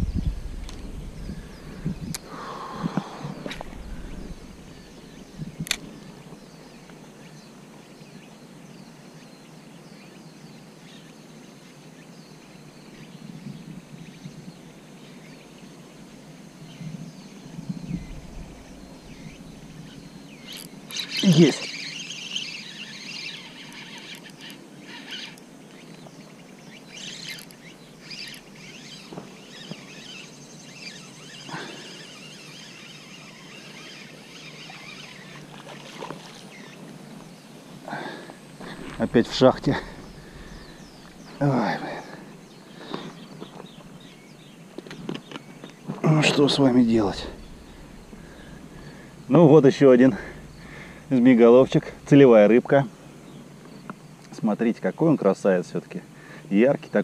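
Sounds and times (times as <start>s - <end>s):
faint bird chirps: 16.6s - 55.1s.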